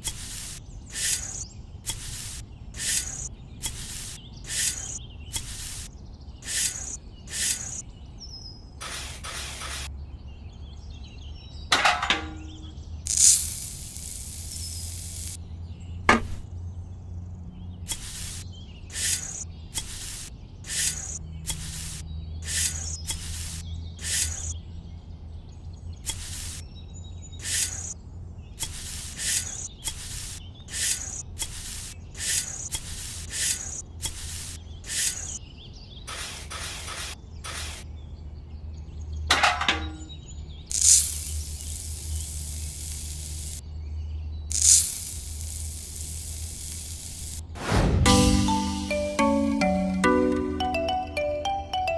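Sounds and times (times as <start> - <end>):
metal shovel scraping sand: 0.0 - 7.8
sharp metallic clicks: 0.0 - 7.8, 11.7 - 15.4, 17.9 - 24.6, 26.1 - 26.6, 27.4 - 28.0, 28.6 - 35.4, 40.7 - 43.6, 44.5 - 47.5
sand pouring: 13.1 - 15.4, 40.7 - 43.6, 44.5 - 47.7.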